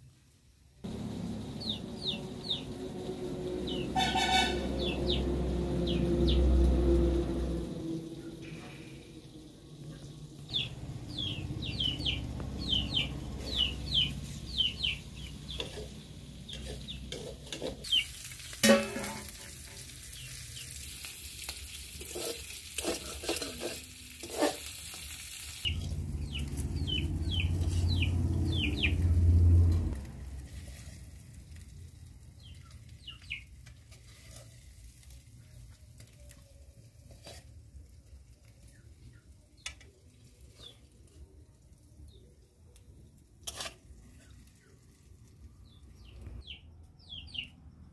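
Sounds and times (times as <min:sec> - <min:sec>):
high falling chirps: 0:00.9 - 0:06.6
low rumble: 0:00.9 - 0:16.5, 0:25.7 - 0:30.6
food sizzling in a pan: 0:14.0 - 0:26.7.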